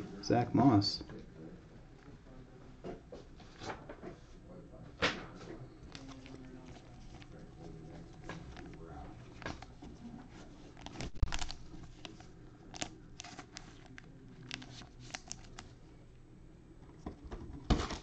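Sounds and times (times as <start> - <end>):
plastic rustling: 5.8 - 15.7.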